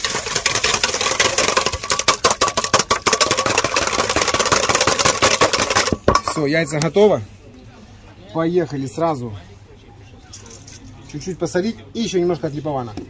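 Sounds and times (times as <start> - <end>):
whisk beating eggs in metal bowl: 0.0 - 6.6.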